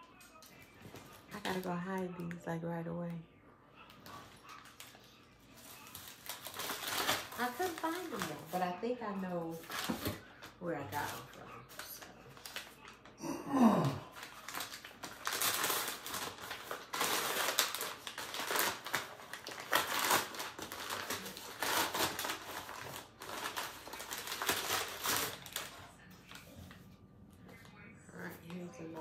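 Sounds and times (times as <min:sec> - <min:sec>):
paper rustling and crinkling: 0:03.9 - 0:13.1, 0:14.1 - 0:27.7
cardboard envelope tearing: 0:05.6 - 0:08.7, 0:14.1 - 0:25.8.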